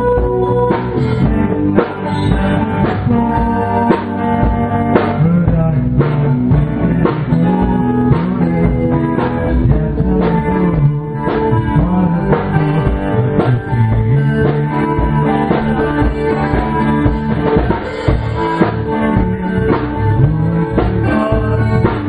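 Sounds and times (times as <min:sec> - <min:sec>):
amplified guitars playing: 0:00.0 - 0:22.0
drum kit beat: 0:00.0 - 0:22.0.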